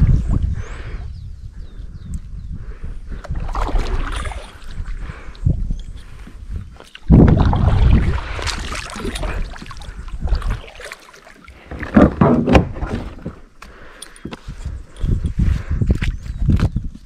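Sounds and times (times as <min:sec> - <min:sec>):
water sloshing against hull: 0:03.2 - 0:14.7
kayak paddle splashing: 0:03.3 - 0:05.0, 0:06.8 - 0:13.4.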